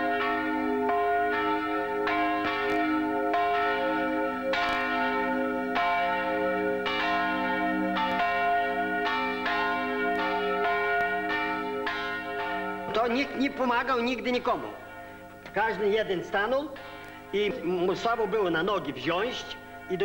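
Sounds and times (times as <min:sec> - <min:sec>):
church bells ringing: 0:00.0 - 0:20.0.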